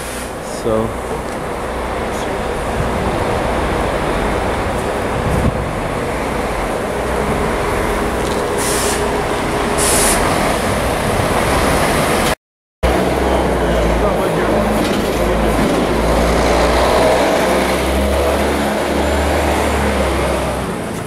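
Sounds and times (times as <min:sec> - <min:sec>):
coach engine rumble: 0:00.0 - 0:21.0
traffic rumble: 0:00.0 - 0:21.0
short high hisses: 0:08.6 - 0:09.2, 0:09.8 - 0:10.3.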